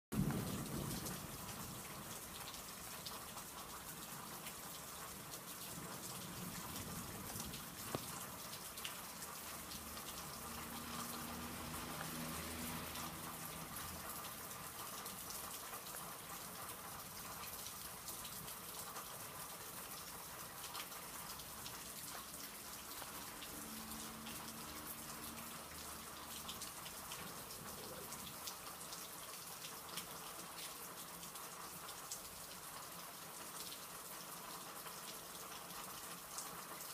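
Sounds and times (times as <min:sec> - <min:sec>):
thunder rumble: 0:00.1 - 0:02.1
rain pattering: 0:00.1 - 0:36.9.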